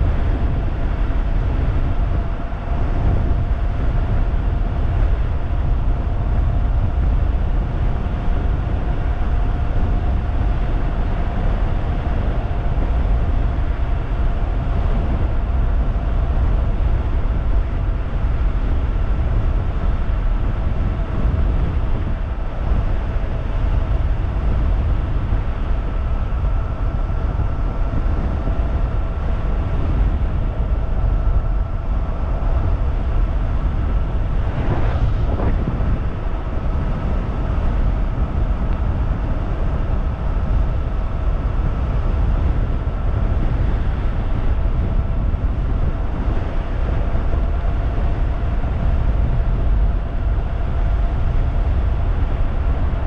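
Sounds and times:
road rumble: 0.0 - 53.0
wind rush: 0.0 - 53.0.

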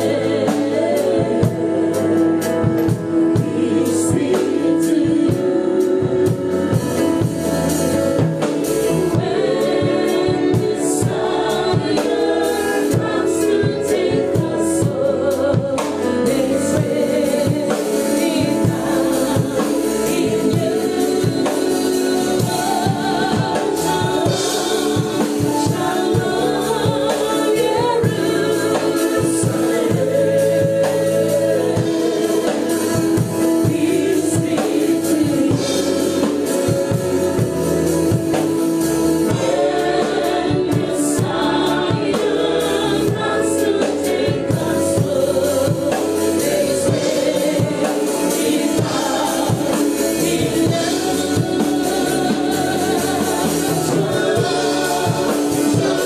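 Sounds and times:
backing singers: 0.0 - 56.0
bass guitar: 0.0 - 56.0
drum kit beat: 0.0 - 56.0
woman singing: 9.2 - 37.3, 39.3 - 56.0.

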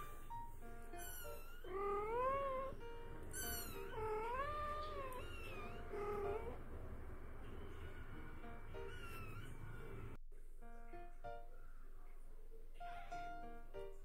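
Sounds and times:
light background music: 0.0 - 14.0
cat meowing: 0.9 - 6.6, 7.5 - 10.2.

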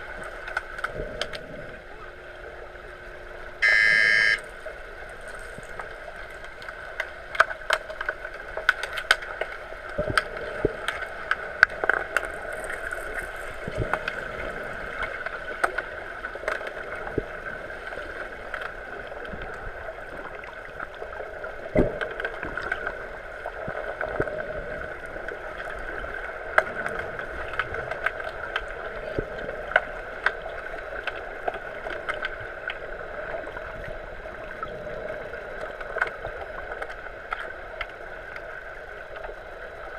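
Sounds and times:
muffled underwater hiss: 9.6 - 39.9.

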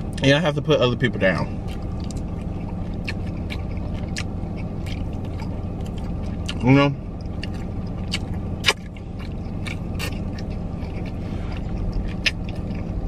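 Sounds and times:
low hum: 0.0 - 13.0
chewing: 1.6 - 6.6, 7.2 - 13.0.

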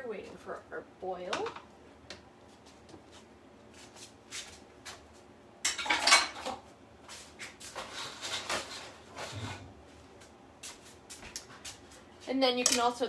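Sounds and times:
dishes and utensils clattering: 5.6 - 6.6.

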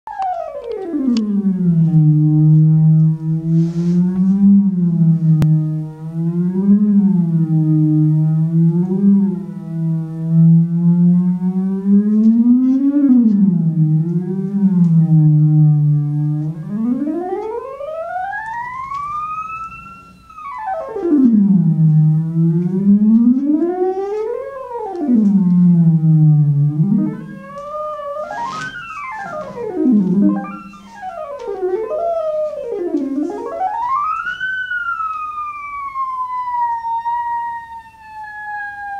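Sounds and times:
synthesized tone sweeping in pitch: 0.1 - 38.9.

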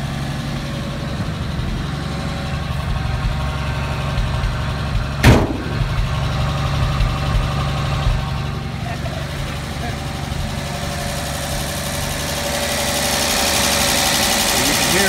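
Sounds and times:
engine idling: 0.0 - 15.0
sharp thump: 5.2 - 6.2.

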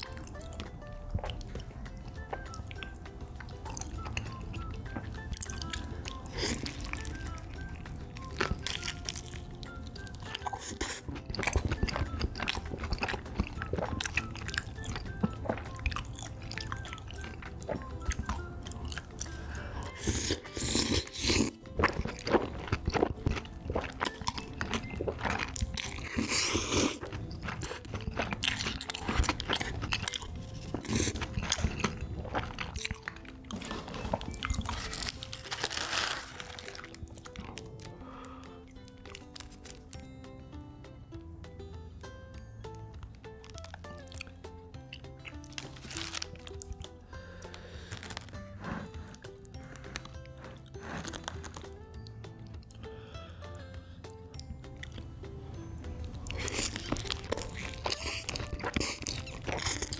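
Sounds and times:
chewing and crunching: 0.0 - 40.1, 42.3 - 55.2, 55.8 - 59.9
background music: 0.0 - 59.9
chopsticks stirring thick sauce: 10.2 - 35.4, 56.3 - 59.9
wet slurps: 19.0 - 35.1, 56.4 - 59.9.

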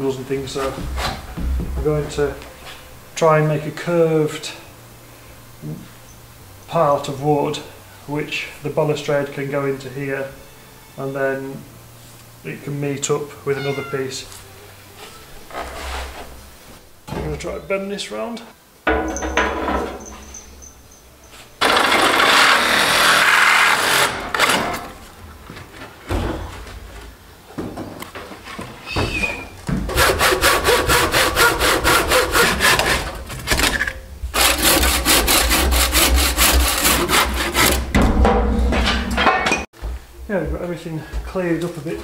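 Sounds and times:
handsaw cutting through timber: 21.6 - 24.7, 29.9 - 33.6, 34.4 - 37.9
loud rough rubbing: 21.6 - 24.9, 29.9 - 37.9.

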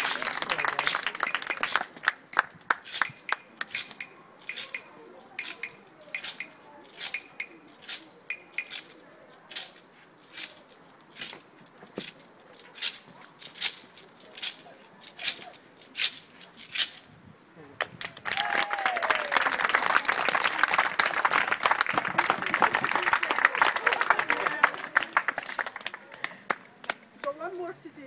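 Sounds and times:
hand clapping: 0.0 - 4.8, 17.8 - 27.4.

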